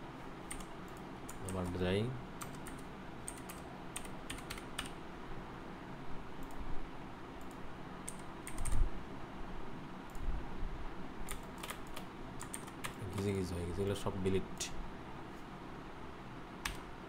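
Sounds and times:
keyboard typing: 0:00.5 - 0:01.8, 0:02.4 - 0:05.0, 0:07.4 - 0:08.8, 0:11.3 - 0:13.4.

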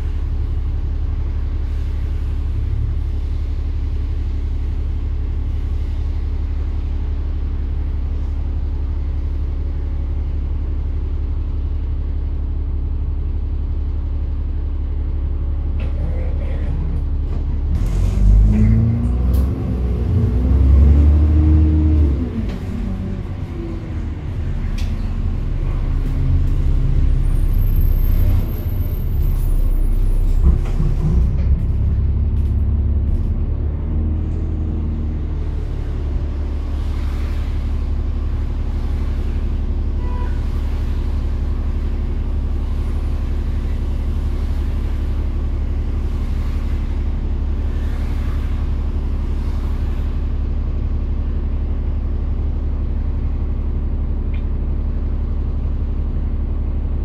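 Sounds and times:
bus engine rumbling: 0:00.0 - 0:57.0.

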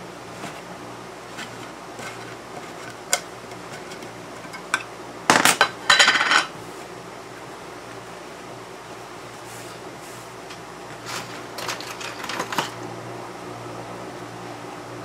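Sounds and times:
metal lid clattering and scraping: 0:01.3 - 0:06.5.

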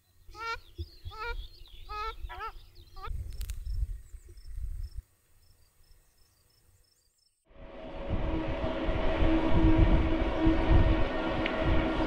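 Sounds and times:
wavering bird calls: 0:00.2 - 0:03.2
wind rumbling on microphone: 0:00.7 - 0:05.0, 0:07.5 - 0:12.0
faint high-pitched insect chirps: 0:03.0 - 0:07.4.

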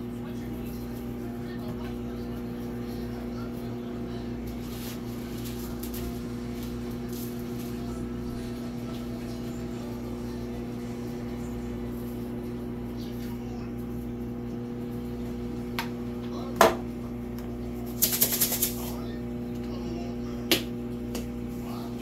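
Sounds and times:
steady hum with held tones: 0:00.0 - 0:22.0
seasoning shaker rattling: 0:17.9 - 0:18.9.

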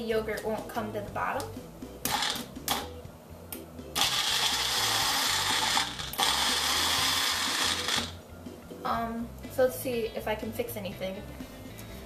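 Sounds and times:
blender motor pulsing: 0:02.1 - 0:02.8, 0:04.0 - 0:08.2.

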